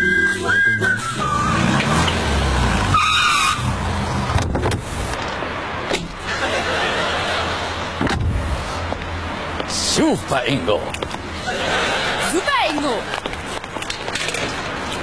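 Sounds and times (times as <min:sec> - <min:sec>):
tyre squeals: 0:02.9 - 0:03.8.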